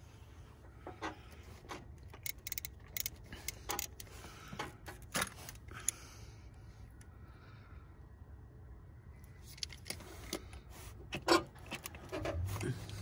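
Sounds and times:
ratchet clicking on a bolt: 2.2s - 4.1s.

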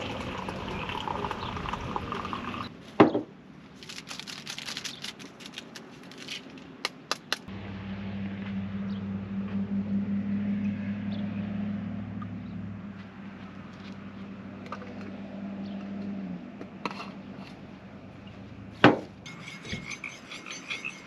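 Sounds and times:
water running into container: 0.0s - 2.7s.

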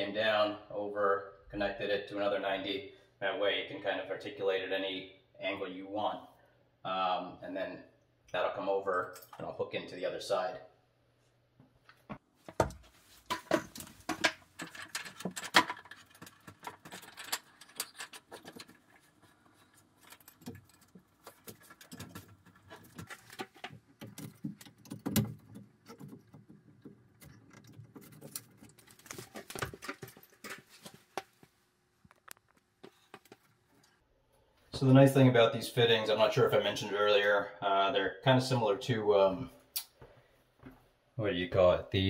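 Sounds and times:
plumbing pipe fittings clicking: 13.3s - 31.3s.

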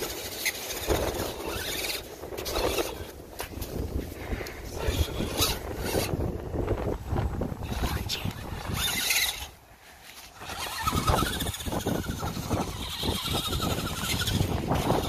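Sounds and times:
electric motor whining: 3.8s - 15.0s.

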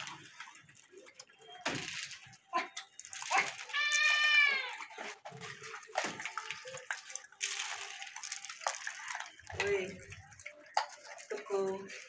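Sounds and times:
grain picked from concrete floor: 6.5s - 9.3s.

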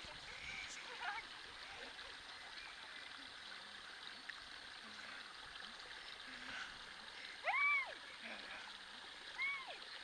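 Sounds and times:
faint flowing water: 0.0s - 10.0s.

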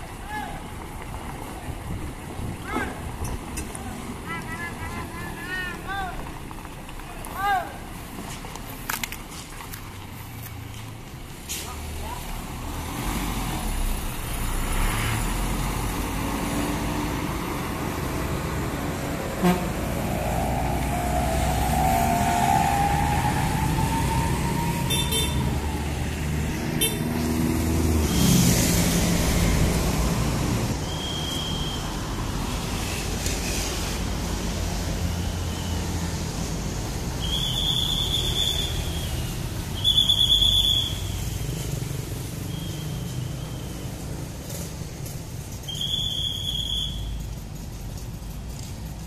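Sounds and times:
road traffic passing: 0.0s - 49.0s
short high vehicle horn toots: 19.4s - 19.7s, 24.9s - 25.4s.

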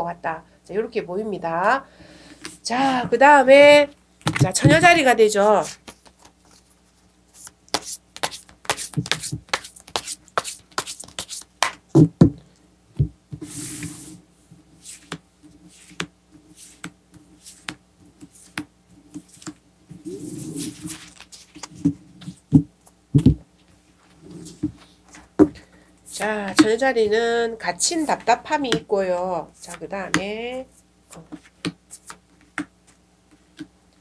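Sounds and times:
cards shuffling: 5.6s - 11.8s, 14.8s - 23.0s, 31.1s - 33.7s
cards swishing and sliding: 5.6s - 11.8s, 13.4s - 14.2s, 14.8s - 22.4s.

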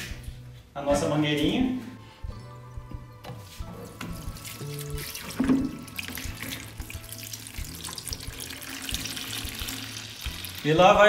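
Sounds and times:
wine splashing into bucket: 4.0s - 10.7s.

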